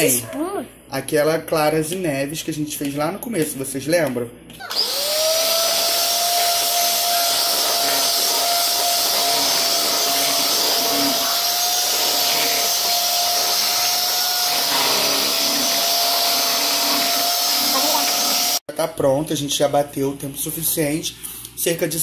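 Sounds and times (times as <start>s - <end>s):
electric hand mixer whining: 4.6s - 18.6s.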